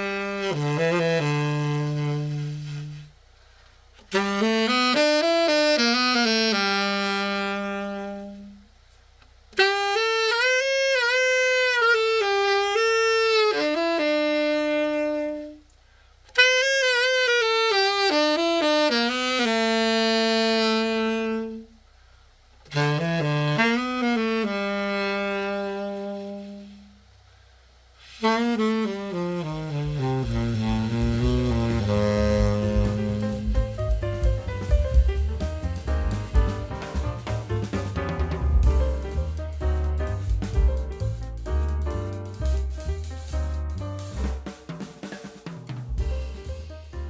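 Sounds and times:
tenor saxophone phrases: 0.0 - 3.2, 4.0 - 8.7, 9.6 - 15.6, 16.3 - 21.8, 22.7 - 27.0, 28.0 - 37.8.

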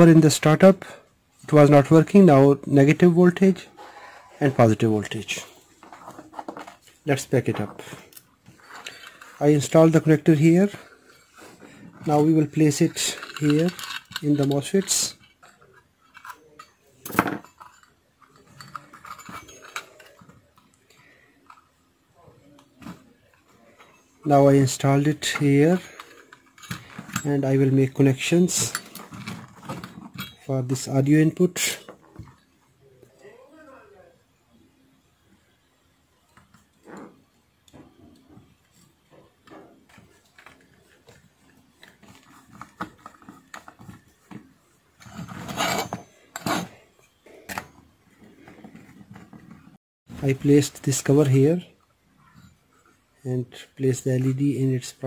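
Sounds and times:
clicks and knocks of handled metal parts: 5.2 - 21.8, 22.5 - 32.5, 37.7 - 49.7.

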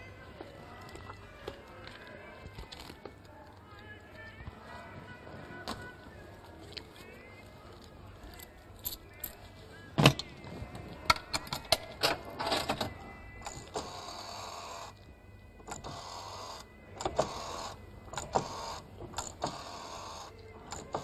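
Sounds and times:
rotary dial whirring back: 13.4 - 15.0, 15.7 - 21.0.

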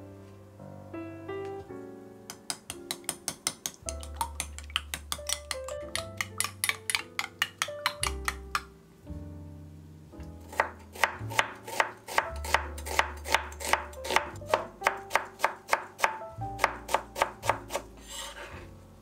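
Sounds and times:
knife chopping on cutting board: 10.5 - 18.5
knife scraping board: 17.5 - 18.7.

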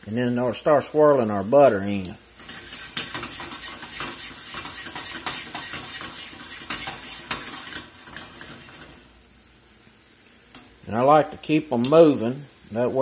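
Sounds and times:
shrimp sizzling in a skillet: 0.0 - 13.0
metal clattering against pan: 2.4 - 9.0.

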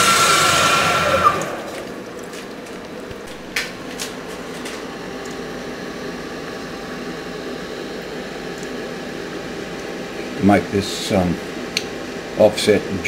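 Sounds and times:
milling machine cutting plastic: 0.0 - 2.4.

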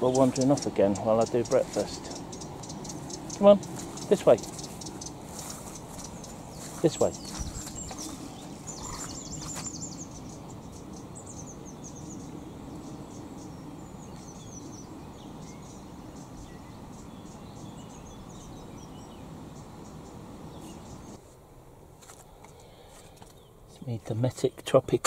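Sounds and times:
bird trilling: 0.0 - 19.1
small birds chirping: 0.0 - 21.3, 22.1 - 25.0.

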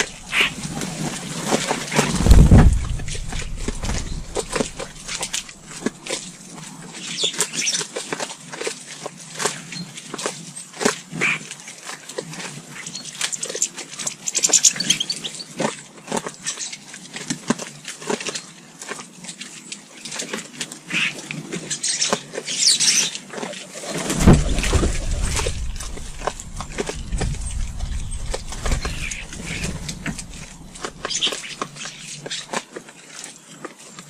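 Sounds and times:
low rumble: 0.0 - 5.4, 24.1 - 31.6
birds calling and chattering: 0.0 - 5.5, 23.8 - 32.6.

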